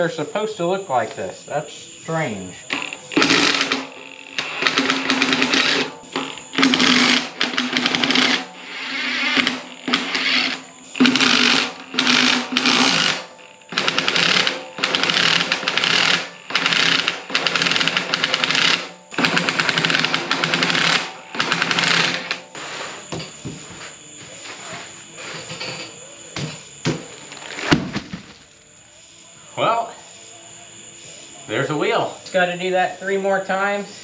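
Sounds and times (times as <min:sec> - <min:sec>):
impact wrench hammering: 0:02.7 - 0:22.5.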